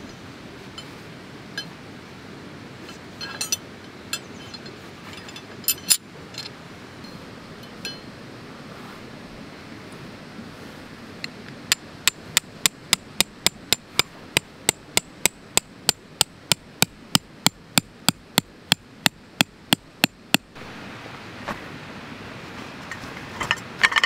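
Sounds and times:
hammer striking metal tent peg: 0:11.7 - 0:20.5.

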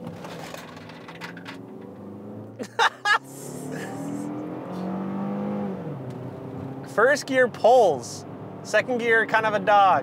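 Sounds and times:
car engine accelerating: 0:00.8 - 0:09.8
driver vocal sounds: 0:02.8 - 0:04.5, 0:06.9 - 0:10.0.

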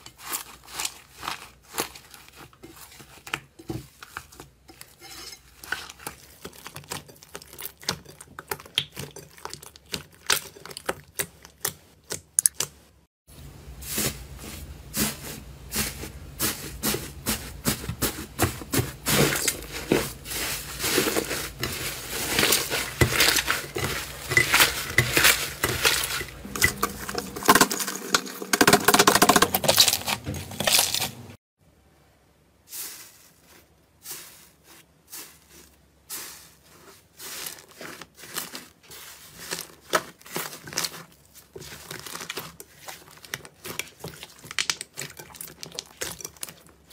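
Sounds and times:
crusty slime crackling: 0:00.1 - 0:04.4, 0:18.8 - 0:31.4, 0:32.8 - 0:46.9.

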